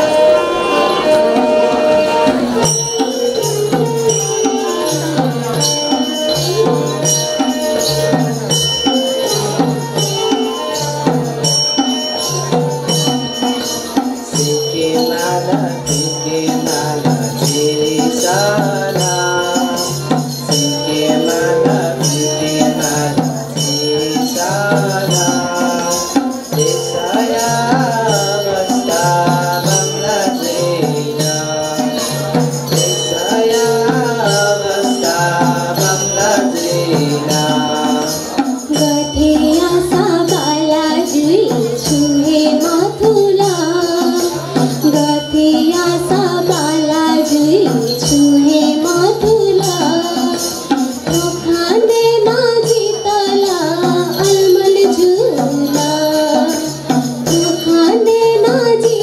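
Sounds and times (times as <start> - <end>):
harmonium melody: 0.0 - 12.9
group singing: 0.0 - 58.8
percussion beat: 0.0 - 59.0.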